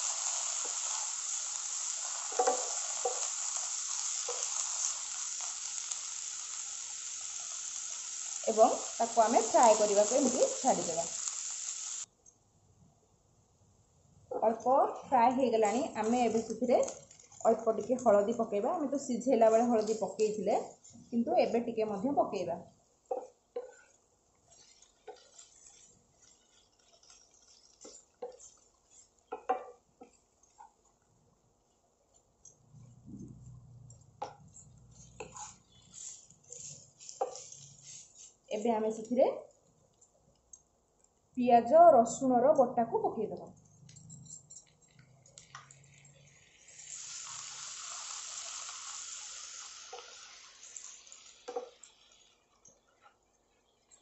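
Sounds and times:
faint frying sizzle: 0:00.0 - 0:12.1, 0:14.3 - 0:41.3, 0:43.8 - 0:54.0
spatula scraping and knocking pan: 0:02.0 - 0:05.9, 0:23.1 - 0:30.8, 0:34.2 - 0:38.3, 0:51.5 - 0:51.8.

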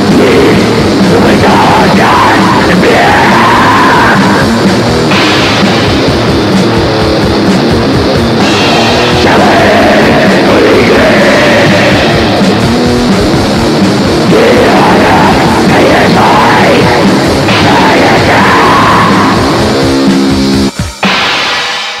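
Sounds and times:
harsh screamed vocal: 0:00.0 - 0:06.2, 0:08.4 - 0:12.6, 0:14.1 - 0:19.9
distorted guitars: 0:00.0 - 0:22.0
drums: 0:00.0 - 0:22.0.

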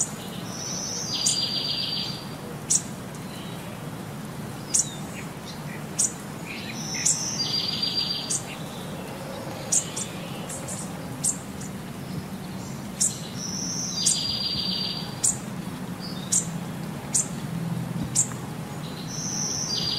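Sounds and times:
bird chirps: 0:04.7 - 0:15.4, 0:18.1 - 0:19.9.

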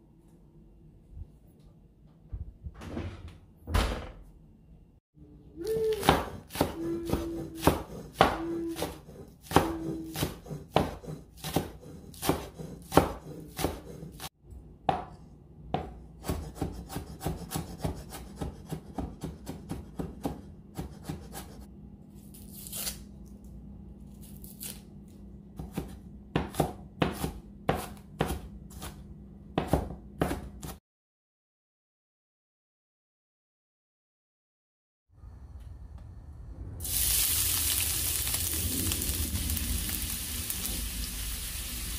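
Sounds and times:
knife chopping on wooden board: 0:06.0 - 0:21.6, 0:25.6 - 0:30.8.

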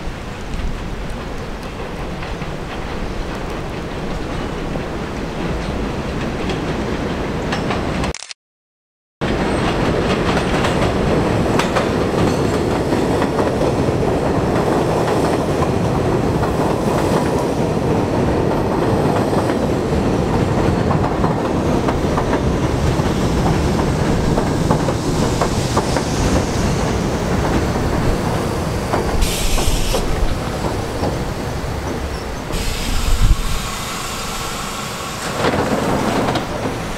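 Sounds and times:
train wheels rumbling on rails: 0:00.0 - 0:08.1, 0:09.2 - 0:36.9
high hiss: 0:29.2 - 0:30.5, 0:32.5 - 0:36.9.

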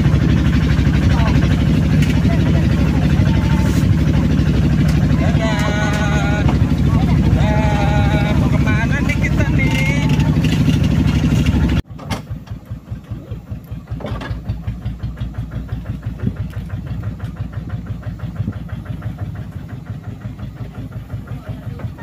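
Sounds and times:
people talking: 0:00.0 - 0:10.6, 0:13.1 - 0:13.6, 0:20.0 - 0:22.0
motorcycle engine running: 0:00.0 - 0:22.0.

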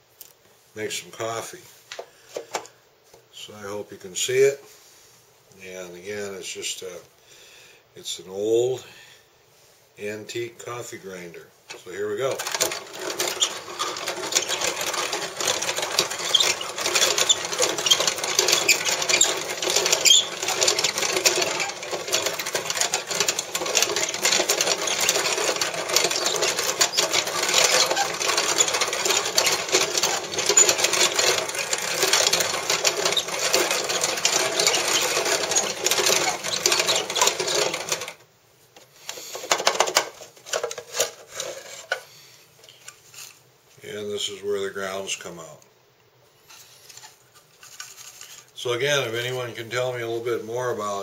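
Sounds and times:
coffee grinder grinding beans: 0:11.7 - 0:38.2
drawer scraping and knocking: 0:12.4 - 0:38.2.

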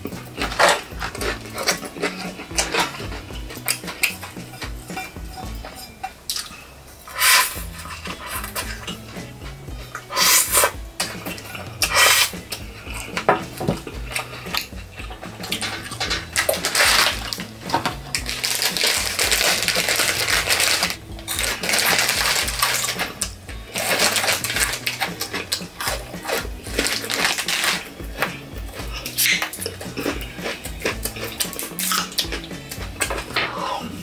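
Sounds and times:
background music: 0:00.0 - 0:34.0
chewing: 0:00.0 - 0:34.0
plastic wrapper crinkling: 0:15.5 - 0:25.6, 0:26.2 - 0:27.9.

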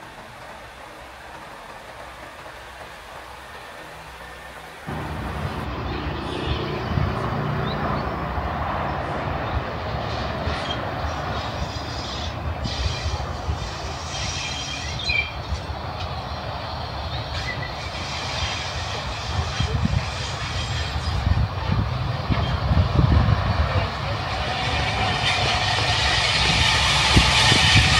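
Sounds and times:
rail and wheel noise: 0:00.0 - 0:27.9
steam train rumble: 0:00.0 - 0:27.9.

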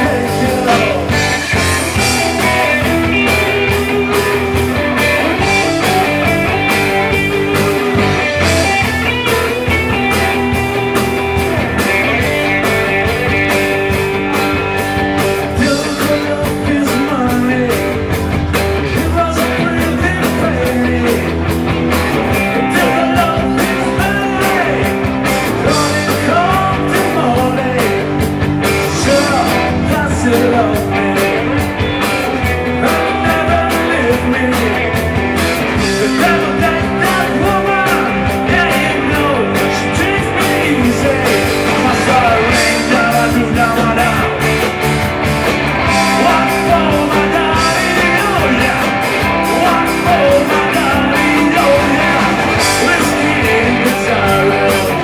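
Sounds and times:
man singing into a microphone: 0:00.0 - 0:04.3, 0:15.4 - 0:21.5, 0:22.3 - 0:44.8, 0:45.9 - 0:55.0
bass guitar: 0:00.0 - 0:55.0
drum kit beat: 0:00.0 - 0:55.0
electric guitars: 0:00.0 - 0:55.0.

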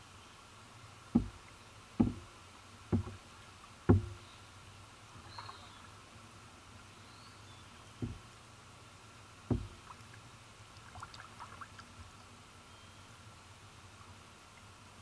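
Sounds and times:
faint knock: 0:01.1 - 0:01.4, 0:02.0 - 0:02.2, 0:02.9 - 0:03.2, 0:03.9 - 0:04.2, 0:08.0 - 0:08.2, 0:09.5 - 0:09.8
kayak paddle thumps: 0:01.1 - 0:01.4, 0:02.0 - 0:02.3, 0:02.9 - 0:03.2, 0:03.9 - 0:04.2, 0:08.0 - 0:08.3, 0:09.5 - 0:09.9.

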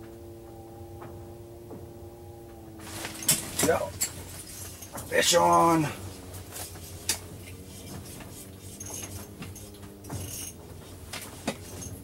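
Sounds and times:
steady low hum: 0:00.0 - 0:12.0
fishing reel whirring: 0:06.5 - 0:10.6.

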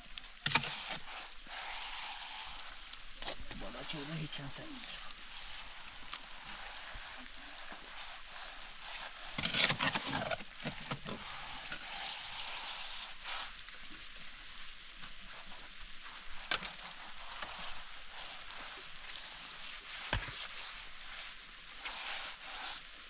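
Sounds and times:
shovel scraping wet mortar: 0:00.4 - 0:01.8.

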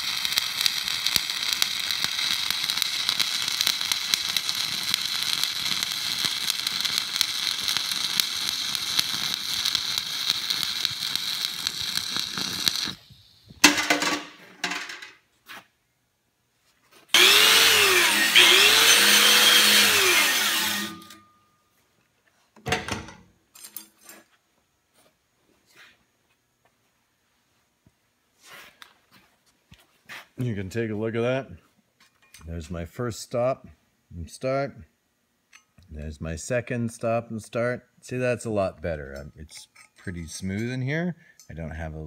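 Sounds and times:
welding arc crackling: 0:00.0 - 0:13.9, 0:17.1 - 0:21.2
angle grinder running: 0:17.2 - 0:21.2.

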